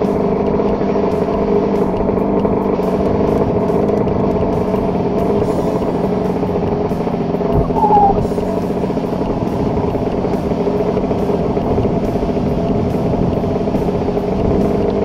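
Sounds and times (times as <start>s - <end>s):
two-stroke engine running: 0.0s - 15.0s
short falling squeak: 7.6s - 8.2s.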